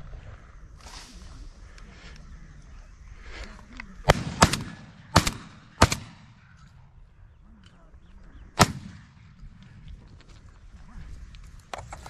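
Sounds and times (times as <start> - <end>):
shotgun shots with echo: 4.1 - 6.5, 8.6 - 9.4.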